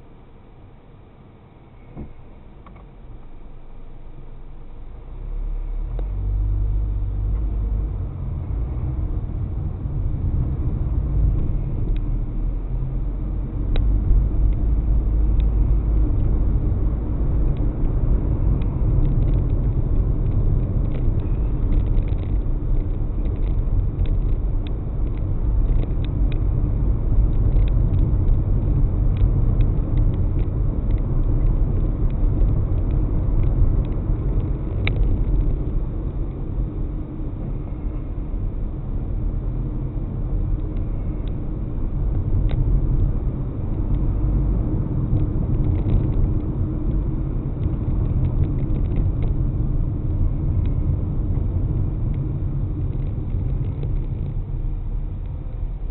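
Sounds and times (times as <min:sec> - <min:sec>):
engine and tyre rumble: 0:00.0 - 0:55.9.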